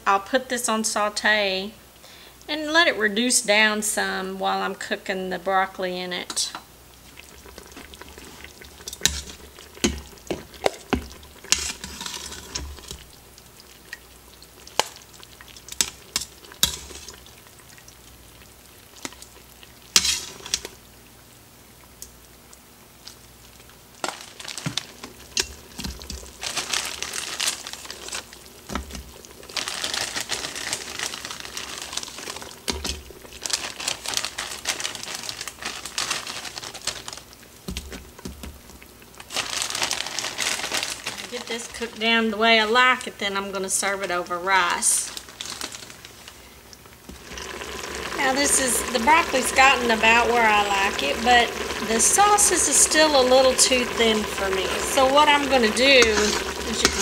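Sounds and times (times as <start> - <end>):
plastic bag crinkling: 24.0 - 43.1, 44.0 - 46.5, 47.1 - 57.0
metal tongs clinking on pot: 55.4 - 57.0.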